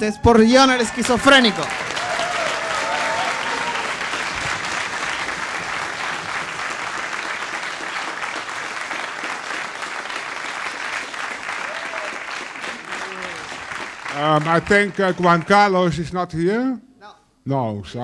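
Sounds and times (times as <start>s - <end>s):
audience applauding: 0.3s - 16.0s.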